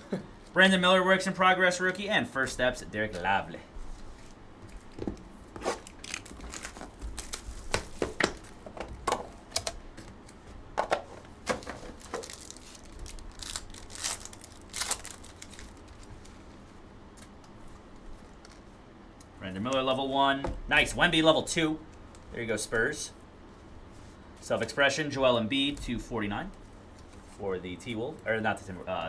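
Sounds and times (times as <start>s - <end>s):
foil wrappers crinkling and tearing: 5.6s - 8.6s, 11.5s - 16.4s.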